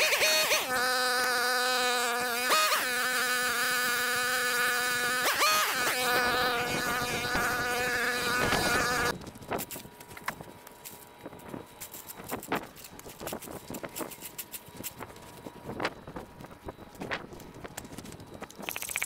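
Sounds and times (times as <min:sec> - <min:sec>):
string trimmer buzzing: 0:00.0 - 0:09.2.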